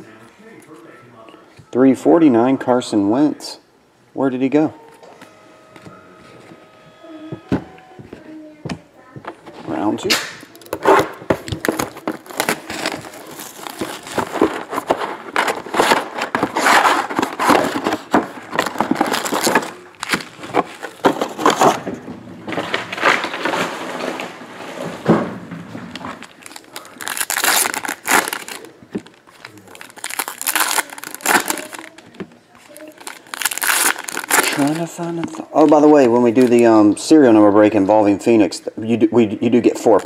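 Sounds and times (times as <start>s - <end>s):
plastic wrappers crinkling: 4.8s - 25.0s, 25.8s - 36.9s.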